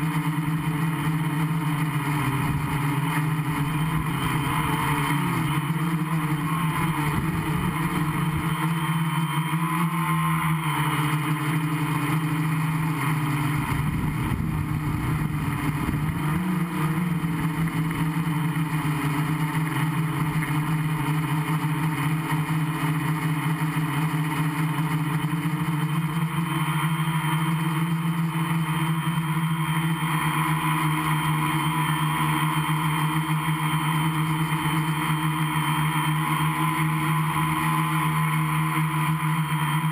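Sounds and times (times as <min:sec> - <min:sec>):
drone propellers buzzing: 0:00.0 - 0:39.9
wind rumble on microphone: 0:13.6 - 0:18.0.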